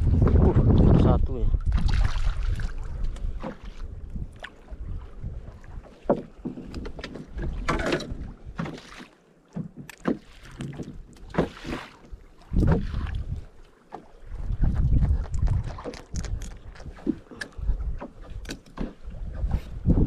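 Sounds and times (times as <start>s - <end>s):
wind rumble on microphone: 0.0s - 5.9s, 12.1s - 13.6s, 14.2s - 20.0s
water splashing against boat: 0.0s - 20.0s.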